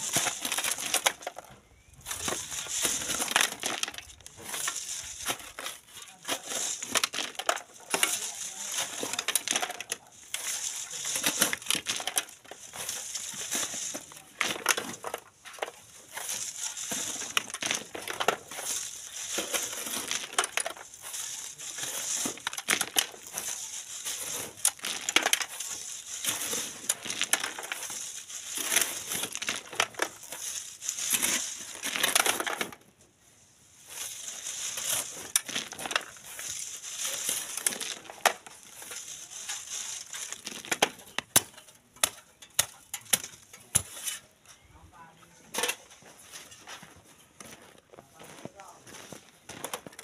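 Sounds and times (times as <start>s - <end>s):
stones clinking: 0.0s - 32.8s, 33.9s - 44.4s
shovels scraping gravelly sand: 0.0s - 50.0s.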